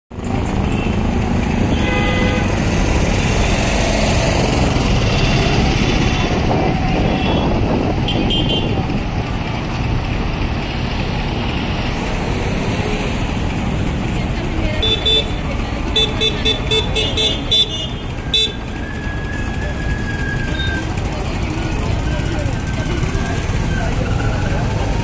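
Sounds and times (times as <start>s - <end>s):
street traffic noise: 0.1s - 25.0s
vehicle horn toots: 1.6s - 2.7s, 5.1s - 6.4s, 7.0s - 8.8s, 16.0s - 18.6s.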